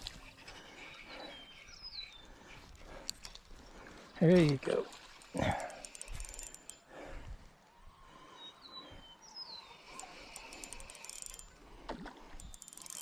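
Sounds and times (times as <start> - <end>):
fishing reel clicking: 4.4 - 7.0, 9.9 - 11.7, 12.3 - 13.0.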